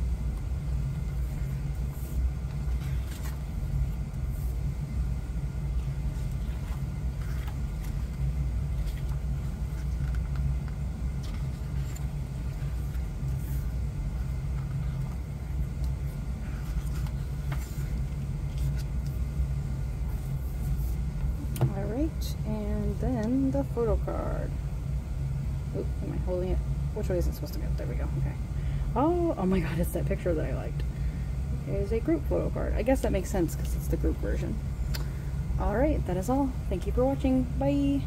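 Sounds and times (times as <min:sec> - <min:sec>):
low background rumble: 0:00.0 - 0:38.0
paper pages rustling: 0:01.0 - 0:04.7, 0:05.7 - 0:19.3.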